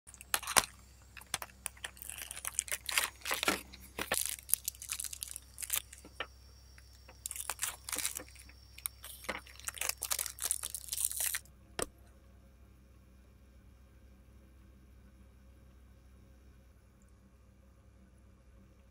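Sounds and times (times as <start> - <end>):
foil wrapper crinkling: 0.1 - 6.2, 6.8 - 11.5.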